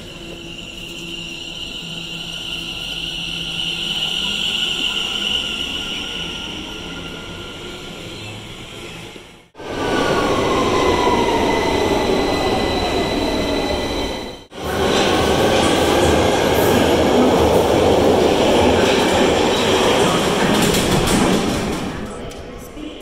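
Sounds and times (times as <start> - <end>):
train wheels rumbling on track: 0.0 - 22.7.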